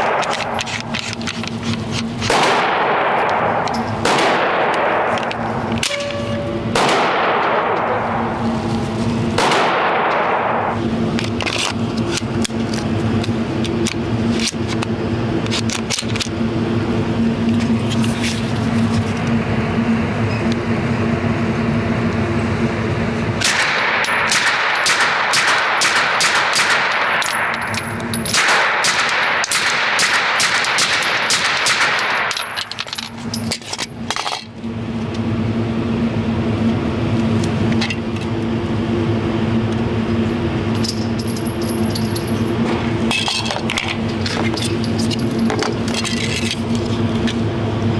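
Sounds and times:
steady low hum: 0:00.0 - 0:47.9
suppressed pistol shots: 0:02.3 - 0:05.2, 0:06.7 - 0:07.8, 0:09.4 - 0:10.7, 0:23.4 - 0:27.2, 0:28.3 - 0:32.3.

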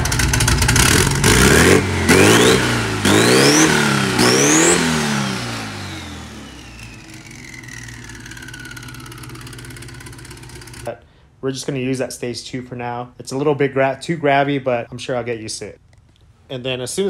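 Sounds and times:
engine revving: 0:00.0 - 0:10.9.

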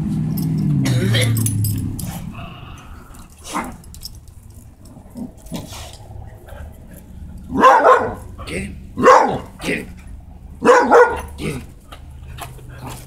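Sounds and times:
collar tags and leash jingling: 0:00.3 - 0:13.0
dog barking: 0:07.5 - 0:08.4, 0:09.0 - 0:09.6, 0:10.6 - 0:11.4
small dogs scuffling on concrete: 0:10.9 - 0:13.0.

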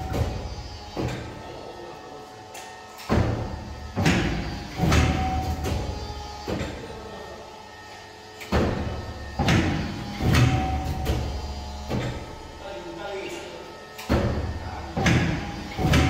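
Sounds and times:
cutting machine clunks: 0:00.0 - 0:01.4, 0:02.6 - 0:07.0, 0:08.4 - 0:12.4, 0:13.9 - 0:16.0
machine low hum: 0:00.0 - 0:16.0.

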